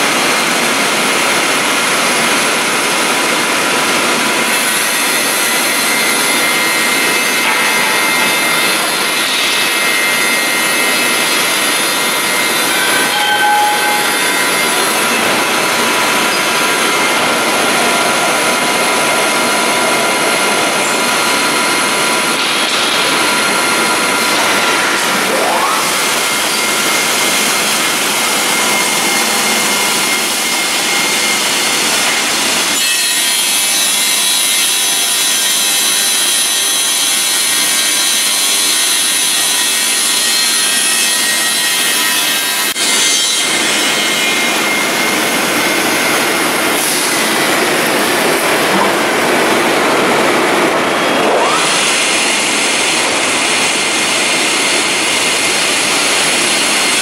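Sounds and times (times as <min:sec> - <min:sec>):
circular saws cutting boards: 0:00.0 - 0:57.0.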